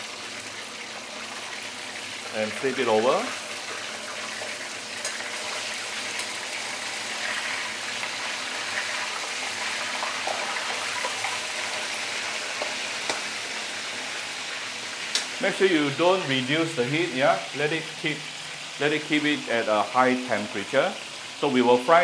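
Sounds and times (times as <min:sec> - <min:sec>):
fish deep-frying in oil: 0:00.0 - 0:22.0.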